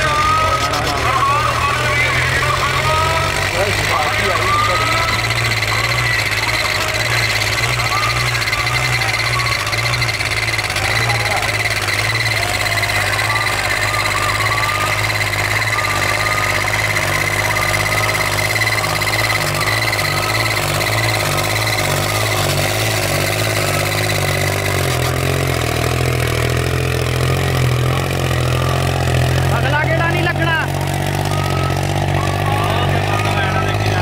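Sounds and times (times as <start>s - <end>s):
high whine: 0.0s - 34.0s
tractor diesel engine under load: 0.0s - 34.0s.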